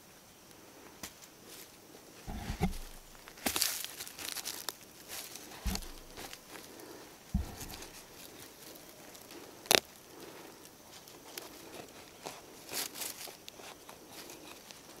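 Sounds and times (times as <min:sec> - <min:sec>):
digging tool scraping dry soil: 0:02.3 - 0:04.4, 0:05.1 - 0:08.4.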